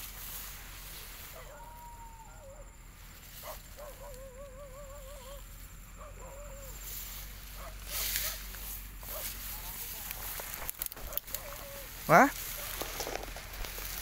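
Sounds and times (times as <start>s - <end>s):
faint whine-like animal call: 1.0s - 9.8s, 11.2s - 12.7s.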